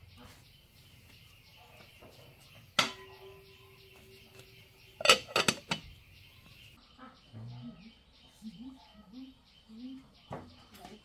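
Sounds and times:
metal pot and lid clanking: 2.7 - 5.9.

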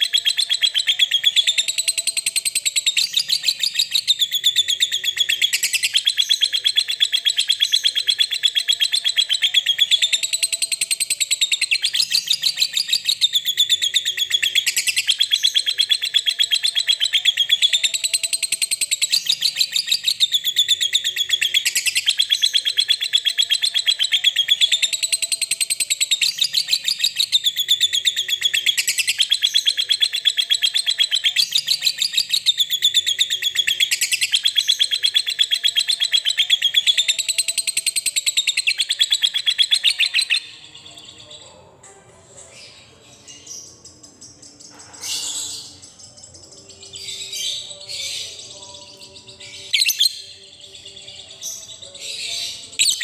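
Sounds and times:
lovebird chattering trill: 0.0 - 40.6, 51.5 - 53.0.

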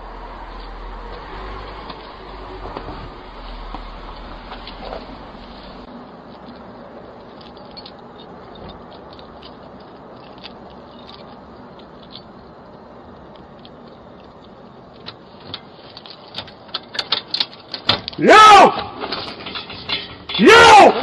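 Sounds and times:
faint clicks and rustles: 1.6 - 18.2.

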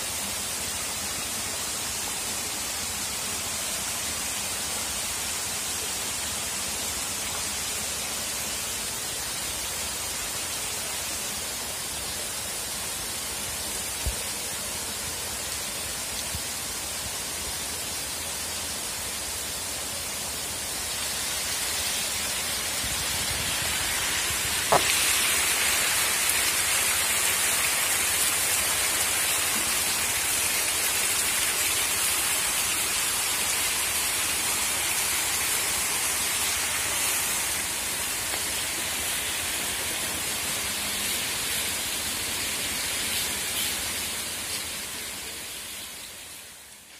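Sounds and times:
sharp knock: 24.7 - 25.0.

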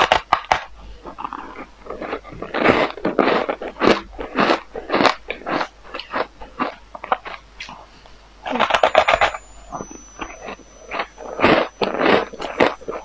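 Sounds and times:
chewing ice crunches: 0.0 - 7.4, 10.2 - 13.0.

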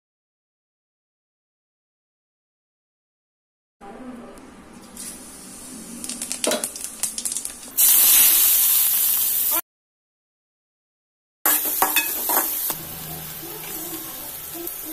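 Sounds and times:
onion sizzling in oil: 5.0 - 9.6, 11.5 - 14.9
spice seeds crackling in hot oil: 5.0 - 9.6.

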